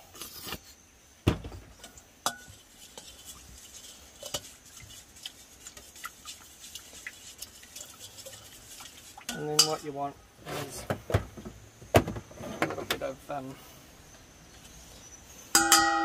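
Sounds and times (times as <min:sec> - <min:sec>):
metal spoon scraping in metal bowl: 0:02.2 - 0:04.9.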